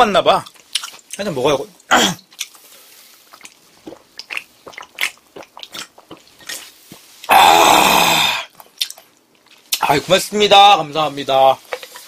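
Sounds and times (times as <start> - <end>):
wet mouth clicks: 0.5 - 1.2, 3.3 - 6.7, 8.6 - 9.8
person gulping a drink: 1.8 - 9.8.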